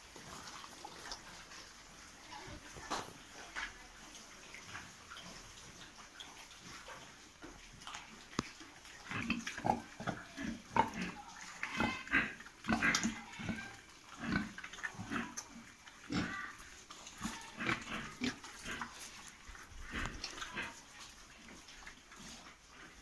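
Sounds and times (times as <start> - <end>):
pigs grunting: 9.0 - 23.0
pig squeals: 10.0 - 15.4, 16.1 - 18.9.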